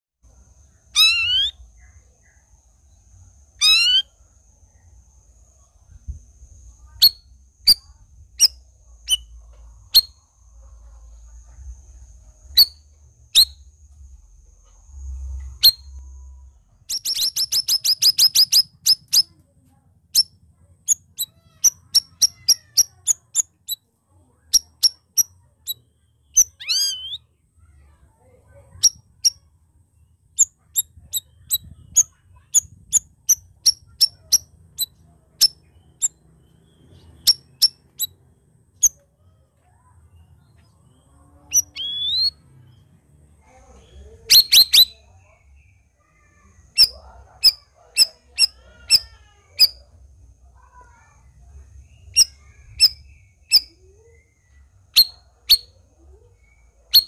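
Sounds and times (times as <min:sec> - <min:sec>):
fast rattling bird trill: 0:00.6 - 0:02.5, 0:03.6 - 0:04.8, 0:06.7 - 0:10.2, 0:12.4 - 0:13.7, 0:15.5 - 0:16.0, 0:16.8 - 0:19.4, 0:20.1 - 0:29.5, 0:30.3 - 0:39.0, 0:41.5 - 0:42.8, 0:44.0 - 0:49.9, 0:50.6 - 0:54.2, 0:54.8 - 0:55.8, 0:56.4 - 0:57.0
bulbul calling: 0:00.9 - 0:01.8, 0:03.6 - 0:04.1, 0:41.5 - 0:42.4, 0:44.3 - 0:45.1.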